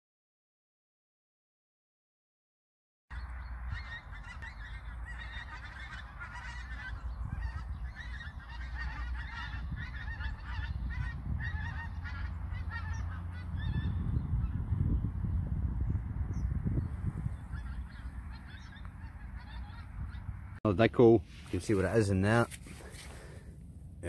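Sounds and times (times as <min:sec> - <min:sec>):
geese honking: 0:03.1 - 0:14.6, 0:17.2 - 0:20.5.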